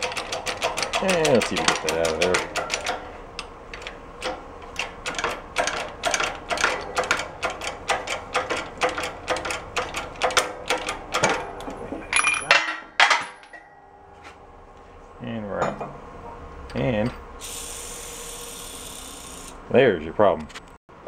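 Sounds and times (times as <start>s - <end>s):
bearing cracking free: 0.0s - 13.7s.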